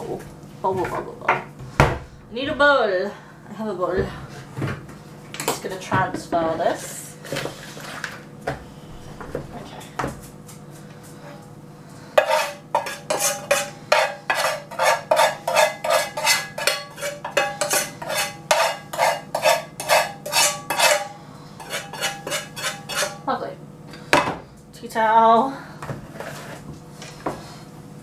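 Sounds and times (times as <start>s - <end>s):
spoon scraping a frying pan: 12.2s - 23.3s.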